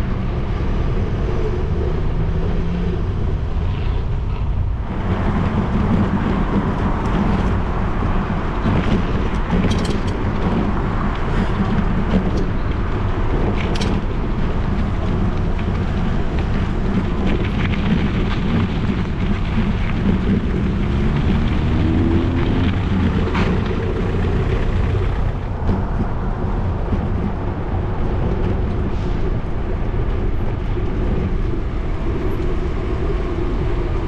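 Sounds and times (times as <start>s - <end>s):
road traffic passing: 0.0s - 34.0s
wind rumble on microphone: 0.0s - 34.0s
vehicle engine rising in pitch: 20.4s - 25.6s.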